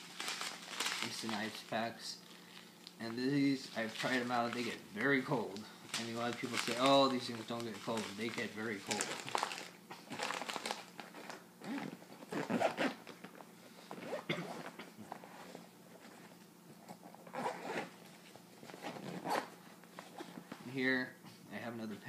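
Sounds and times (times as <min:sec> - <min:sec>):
rustling fabric bag: 0:00.0 - 0:01.6, 0:03.6 - 0:13.0.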